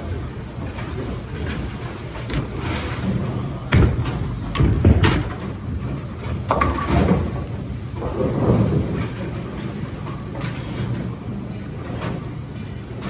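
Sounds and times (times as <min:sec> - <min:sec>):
bowling balls rolling: 0:00.0 - 0:13.0
bowling balls thudding on lane: 0:02.2 - 0:09.0.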